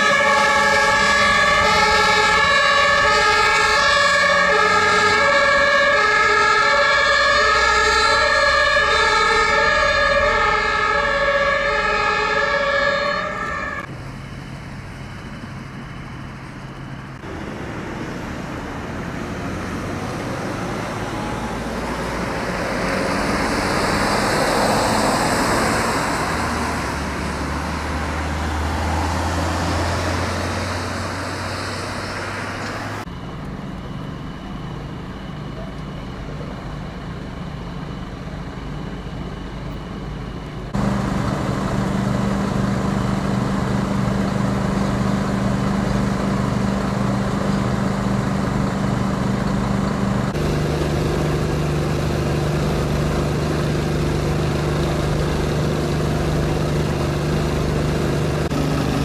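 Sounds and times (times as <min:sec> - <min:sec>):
two-tone siren: 0:00.0 - 0:13.9
passing vehicle engines and tyres: 0:00.0 - 0:34.0, 0:36.4 - 0:59.0.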